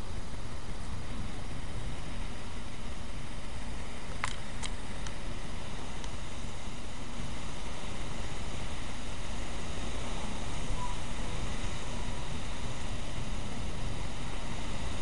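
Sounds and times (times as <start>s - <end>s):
torrential rain hissing: 0.0s - 15.0s
faint ticks: 4.1s - 5.2s, 6.0s - 6.2s.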